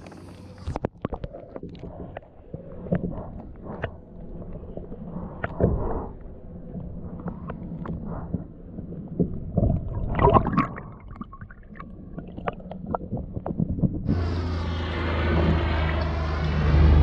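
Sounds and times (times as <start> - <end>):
low drone: 14.1 - 17.0.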